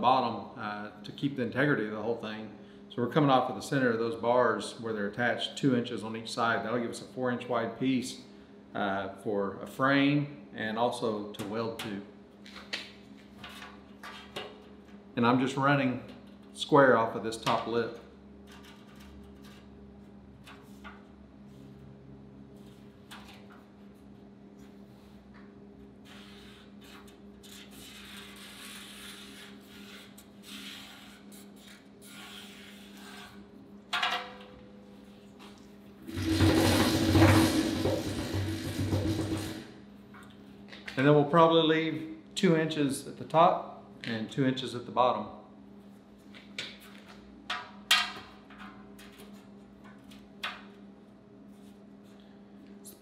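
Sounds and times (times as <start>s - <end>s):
marker rubbing on metal: 26.0s - 33.4s
metal knocking on steel drum: 36.1s - 39.7s.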